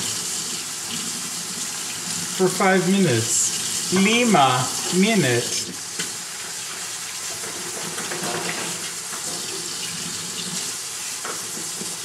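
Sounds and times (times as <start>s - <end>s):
meat sizzling in hot oil: 0.0s - 2.4s, 5.7s - 12.0s.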